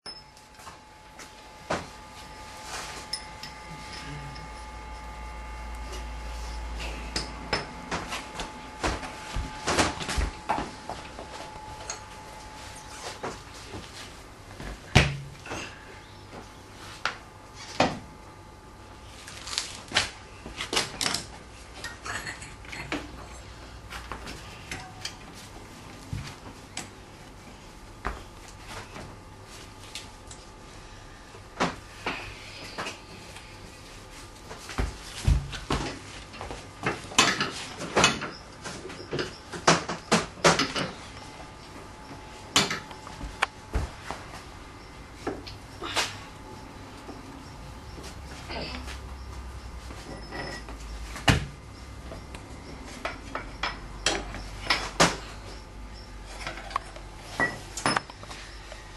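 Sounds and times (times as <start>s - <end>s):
metal tools clinking: 3.0s - 4.6s.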